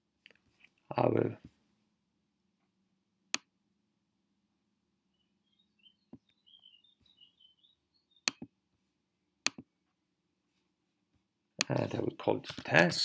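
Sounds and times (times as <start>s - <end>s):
faint high chirps: 5.1s - 8.9s
computer mouse clicks: 8.2s - 8.5s, 9.4s - 9.7s.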